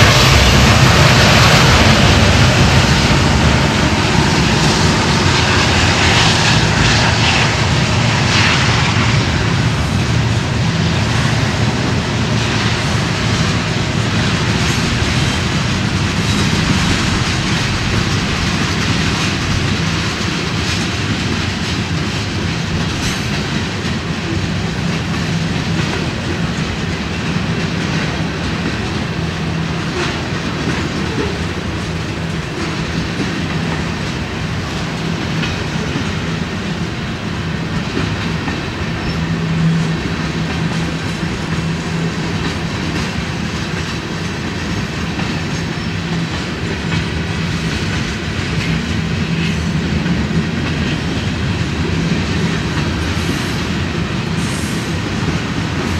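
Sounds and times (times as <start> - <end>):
train wheels rumbling on rail: 0.0 - 55.9
wheels clicking over rail joints: 13.2 - 55.9.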